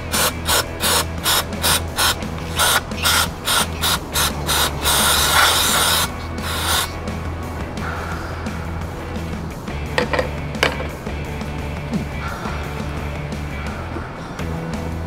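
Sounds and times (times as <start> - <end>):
aerosol spray bursts: 0.0 - 7.0
background music: 0.0 - 15.0.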